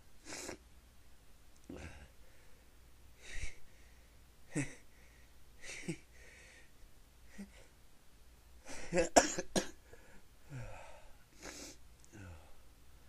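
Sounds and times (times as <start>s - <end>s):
person breathing: 1.7s - 7.8s, 9.8s - 12.6s.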